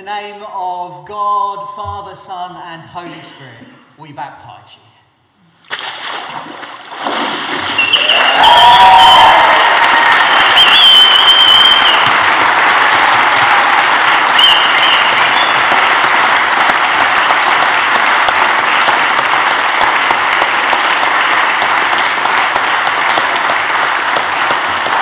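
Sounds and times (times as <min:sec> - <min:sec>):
congregation applauding: 0:07.7 - 0:25.0.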